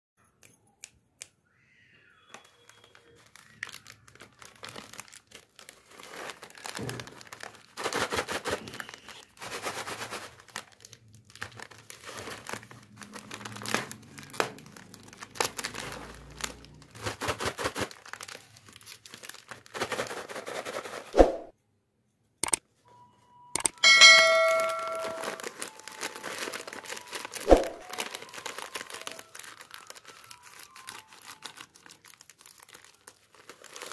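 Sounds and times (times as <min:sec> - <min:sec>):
foil packets rustling: 0:02.1 - 0:21.1, 0:24.3 - 0:33.9
short ringing ding: 0:23.8 - 0:25.5.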